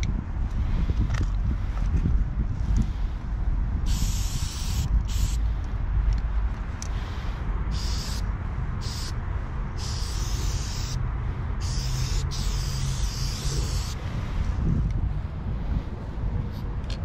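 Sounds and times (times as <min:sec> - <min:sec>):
spray paint can hissing: 0:03.8 - 0:05.4, 0:07.7 - 0:08.2, 0:08.8 - 0:11.0, 0:11.6 - 0:14.0.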